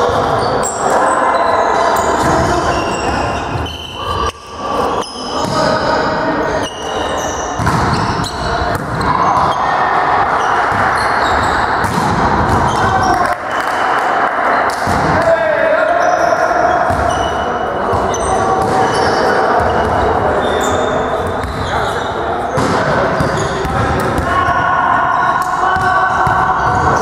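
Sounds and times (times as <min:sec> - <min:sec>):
players' voices: 0:00.0 - 0:27.0
sport shoes squeaking on floor: 0:00.1 - 0:00.8, 0:01.9 - 0:04.4, 0:05.0 - 0:05.8, 0:06.4 - 0:09.7, 0:10.4 - 0:11.9, 0:12.5 - 0:13.2, 0:15.9 - 0:23.7
volleyball being struck: 0:07.6 - 0:09.6, 0:11.8 - 0:13.3.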